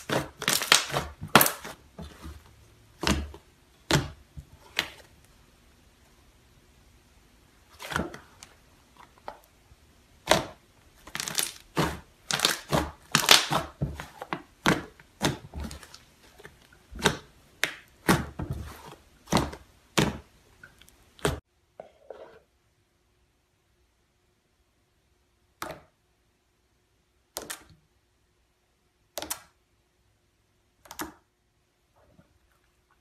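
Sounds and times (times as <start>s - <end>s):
slime crackling and popping: 0.0s - 1.8s, 10.2s - 13.8s.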